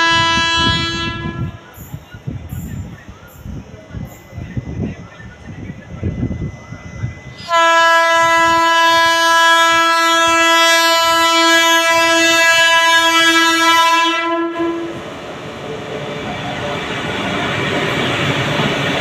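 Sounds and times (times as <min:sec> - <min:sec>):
locomotive horn blast: 0:00.0 - 0:01.6, 0:07.4 - 0:15.1
rumble of oncoming train: 0:00.0 - 0:19.0.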